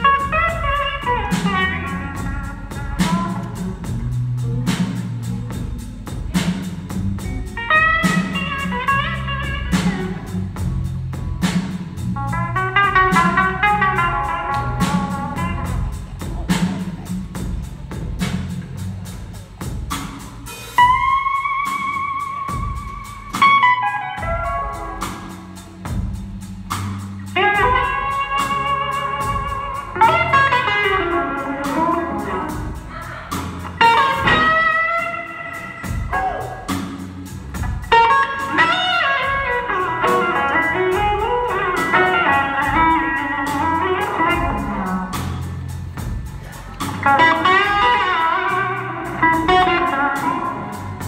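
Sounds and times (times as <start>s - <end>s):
blues band playing: 0.0s - 51.0s
electric guitar solo with bends: 27.4s - 32.9s, 33.7s - 36.7s, 37.9s - 45.0s, 47.0s - 51.0s.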